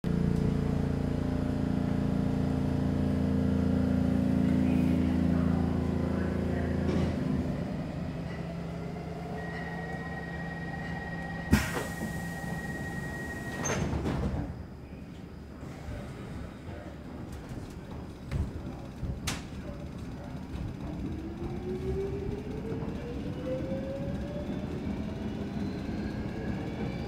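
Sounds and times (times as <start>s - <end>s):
subway car hum: 0.0s - 27.0s
faint steady high tone: 9.2s - 11.5s.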